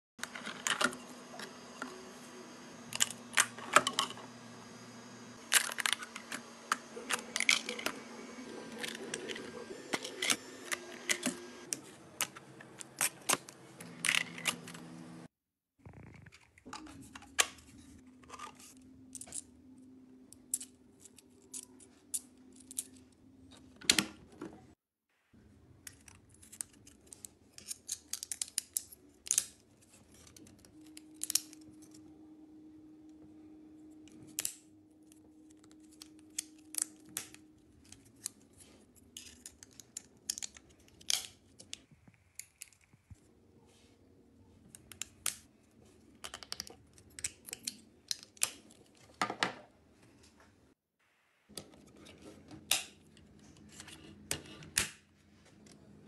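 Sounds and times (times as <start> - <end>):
plastic parts clicking and tapping: 46.2 - 49.7.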